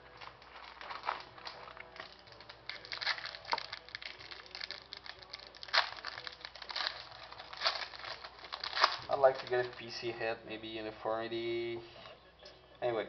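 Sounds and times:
cards being handled: 0:00.0 - 0:09.9
foil wrapper crinkling: 0:00.0 - 0:10.0.

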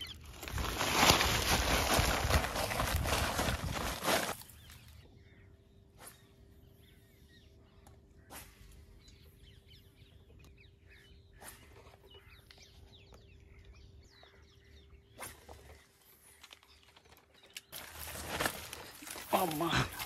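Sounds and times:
birds chirping: 0:00.0 - 0:20.0
rustling noise: 0:00.2 - 0:04.5.

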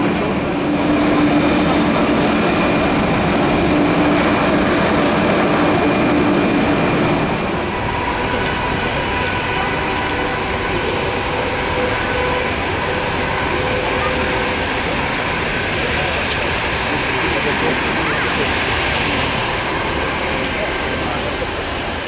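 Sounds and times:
high whining engine tones: 0:00.0 - 0:22.0
jet engines roaring: 0:00.0 - 0:22.0.

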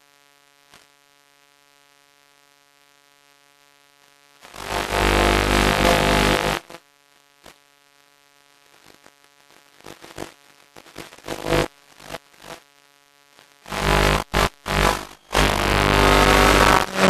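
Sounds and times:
static crackles: 0:00.0 - 0:17.0
rushing static noise: 0:04.4 - 0:06.8, 0:09.8 - 0:17.0
steady electronic hum: 0:04.6 - 0:06.7, 0:13.6 - 0:17.0.

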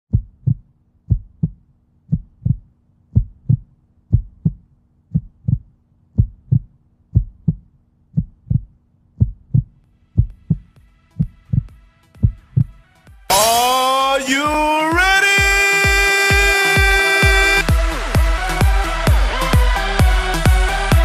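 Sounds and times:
heartbeat thumps: 0:00.1 - 0:12.8.

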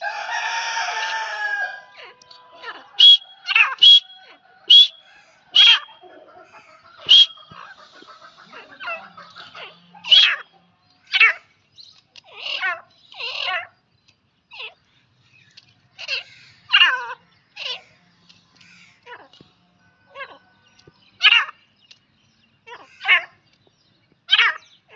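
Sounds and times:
francolin sharp high calls: 0:02.3 - 0:08.2
soft bird chattering: 0:03.0 - 0:10.5.

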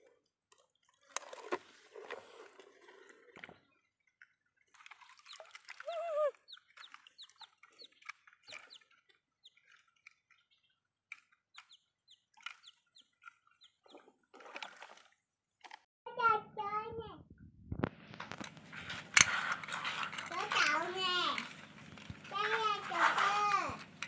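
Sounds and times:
splashing in shallow water: 0:04.6 - 0:10.1, 0:12.3 - 0:15.3
chick peeping: 0:05.2 - 0:09.6, 0:11.6 - 0:14.0.

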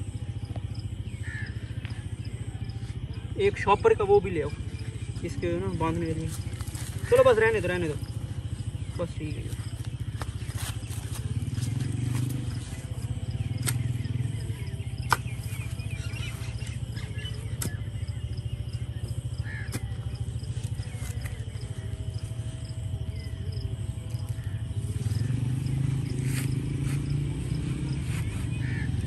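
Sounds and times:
birds chirping: 0:00.0 - 0:29.0
steady low hum: 0:00.0 - 0:29.0
hoe chopping into soil: 0:13.6 - 0:14.0, 0:15.0 - 0:15.6.

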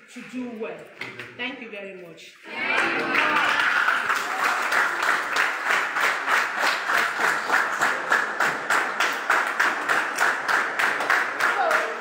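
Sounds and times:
students clapping in rhythm: 0:02.5 - 0:12.0.

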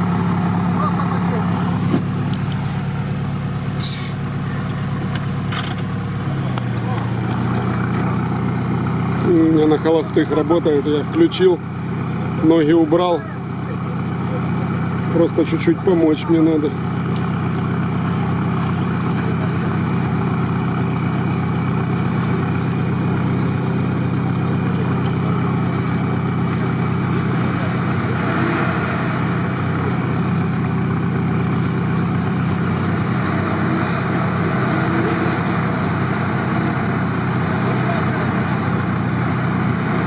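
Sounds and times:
vehicle engine idling: 0:00.0 - 0:40.0.

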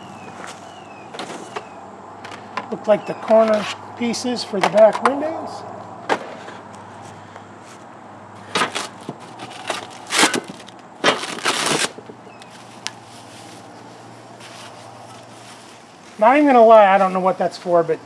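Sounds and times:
plastic and cardboard rustling: 0:08.5 - 0:16.3.

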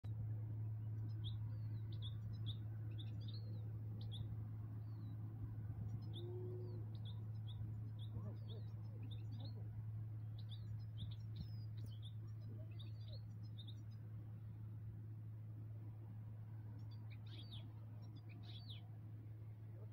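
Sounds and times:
steady low hum: 0:00.0 - 0:19.9
goldfinches twittering: 0:16.8 - 0:18.9.

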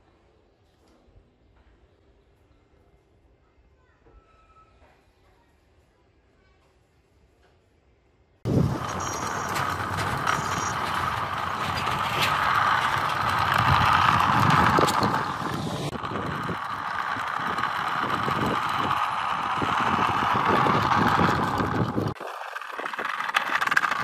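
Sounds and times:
small electric motor whirring: 0:08.4 - 0:24.0
wheels crackling over grit: 0:08.4 - 0:24.0.

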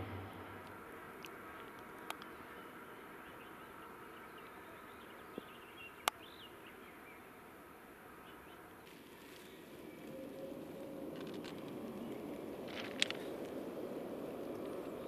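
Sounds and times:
distant freight train rumble: 0:00.0 - 0:01.7
birds chirping: 0:00.0 - 0:07.5.

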